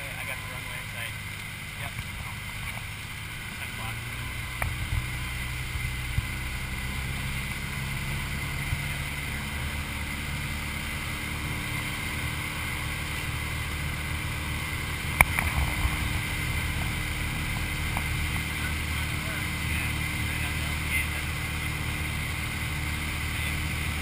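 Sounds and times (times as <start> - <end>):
light aircraft engine droning: 0.0 - 24.0.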